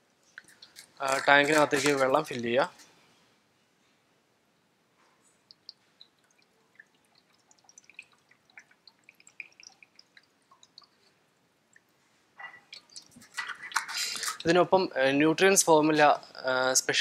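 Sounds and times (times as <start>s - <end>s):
water drips and small splashes: 0.1s - 2.5s, 5.0s - 14.8s.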